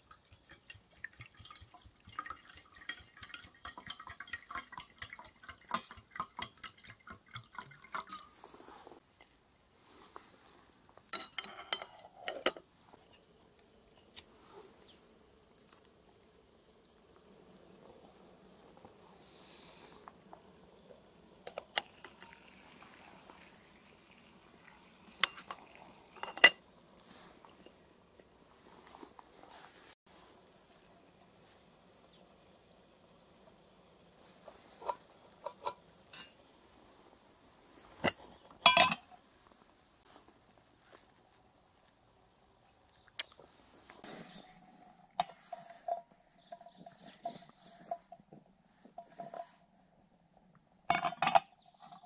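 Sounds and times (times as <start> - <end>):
faint steady hiss: 0.0 - 51.9
metal cookware clicks and clinks: 11.1 - 12.6, 25.2 - 26.6, 38.0 - 39.2
metal kettle lid clinks: 38.0 - 39.1.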